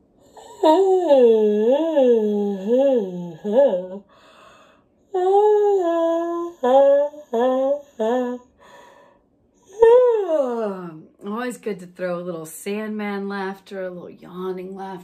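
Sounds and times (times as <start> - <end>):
woman breathing: 4.0 - 5.0, 8.4 - 9.6.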